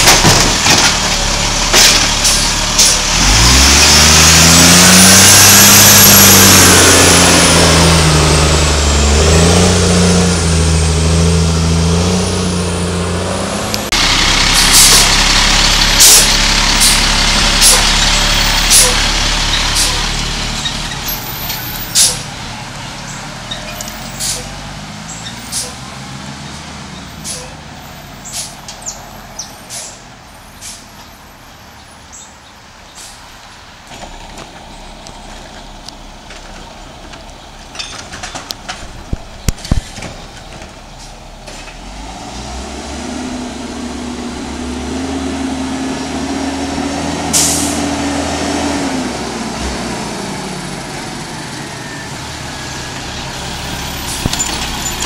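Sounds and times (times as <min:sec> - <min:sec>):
garbage truck diesel engine: 0:00.0 - 0:55.0
air brake hiss: 0:29.7 - 0:30.0, 0:47.4 - 0:47.8.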